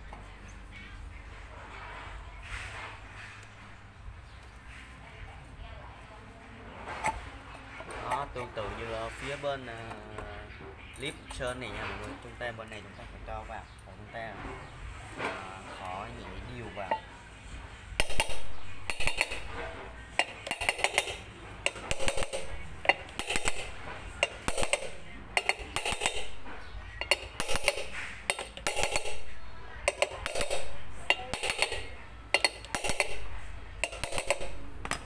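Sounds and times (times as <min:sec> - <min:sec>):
hammer tapping on metal: 0:18.0 - 0:35.0.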